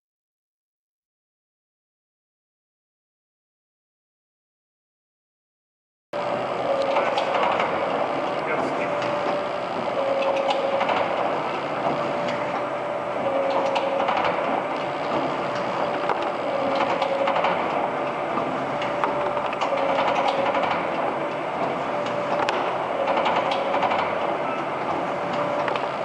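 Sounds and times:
machine clattering: 6.2 - 26.0
machine hum: 6.2 - 26.0.

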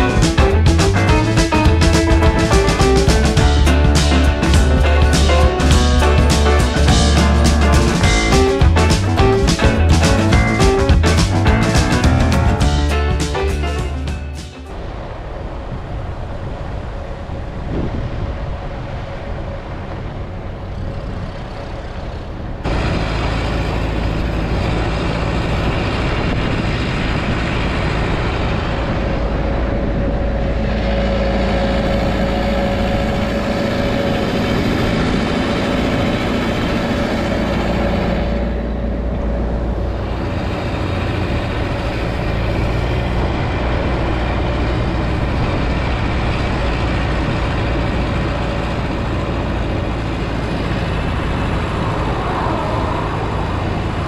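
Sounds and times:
road noise: 0.0 - 54.0
vehicle engine rumble: 0.0 - 54.0
steady whine: 22.5 - 54.0.

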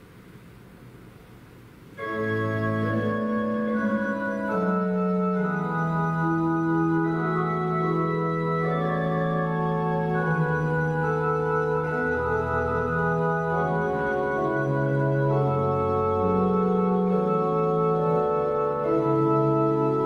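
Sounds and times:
faint hiss: 0.0 - 5.8
church organ chords: 2.0 - 20.0.

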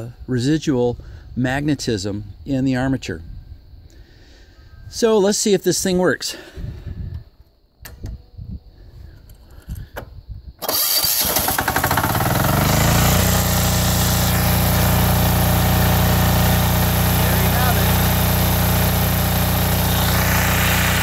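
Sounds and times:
generator engine starting and running: 10.6 - 21.0.

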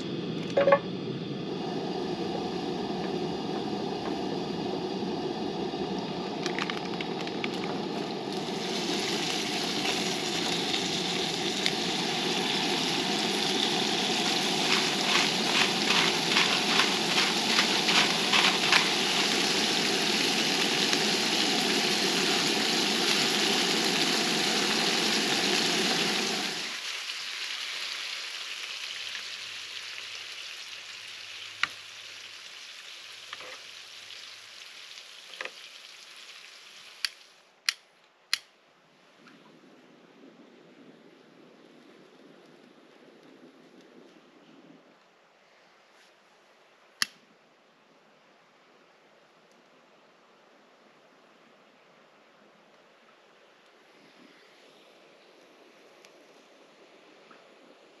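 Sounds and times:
scallops sizzling in oil: 2.4 - 37.4.

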